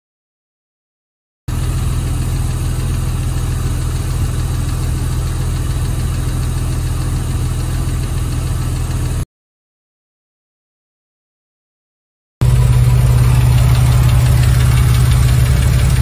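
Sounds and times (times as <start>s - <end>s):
car engine idling: 1.5s - 9.2s, 12.4s - 16.0s
light engine ticking: 1.5s - 9.2s, 12.4s - 16.0s.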